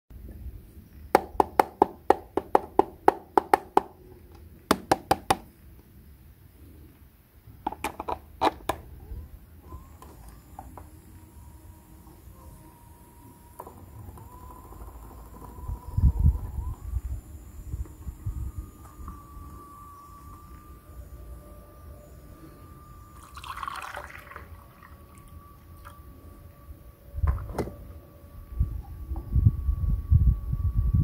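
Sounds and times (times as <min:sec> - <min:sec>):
toy motor whine: 0:07.9 - 0:31.0.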